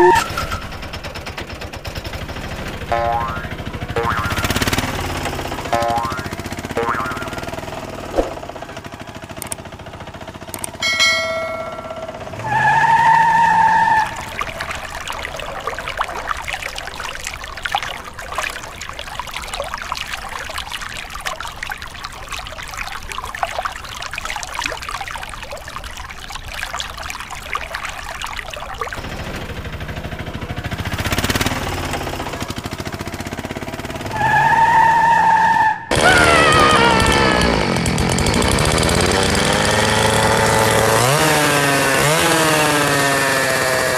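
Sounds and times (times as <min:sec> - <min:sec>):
short steady tone: 0:00.0 - 0:00.4, 0:02.9 - 0:04.6, 0:10.8 - 0:12.5
water splashing from hose: 0:00.0 - 0:09.7, 0:10.6 - 0:35.0, 0:38.3 - 0:43.9.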